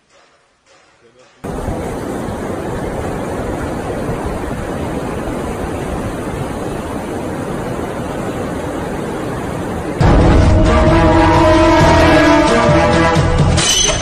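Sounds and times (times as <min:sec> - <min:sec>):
wind: 0:00.0 - 0:14.0
ocean surf: 0:01.1 - 0:14.0
music: 0:10.0 - 0:14.0.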